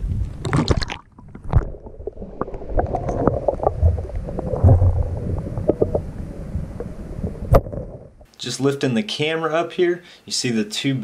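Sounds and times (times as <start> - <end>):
muffled underwater rumble: 1.2 - 8.3.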